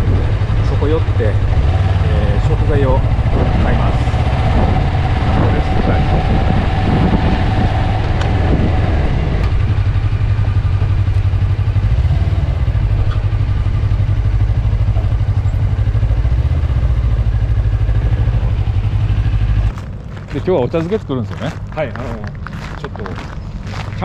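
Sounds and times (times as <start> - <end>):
wind noise: 0.0 - 11.6
motorcycle engine running: 0.0 - 24.0.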